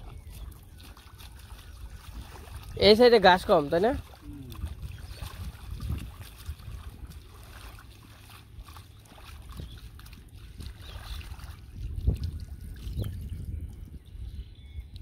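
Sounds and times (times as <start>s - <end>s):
hands splashing in muddy water: 0.0s - 13.8s
low rumble: 4.0s - 15.0s.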